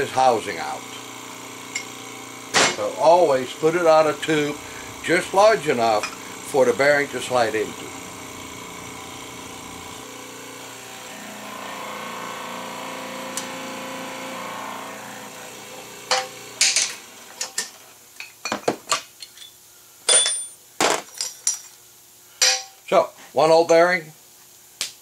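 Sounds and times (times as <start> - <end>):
hydraulic press humming: 0.0 - 18.0.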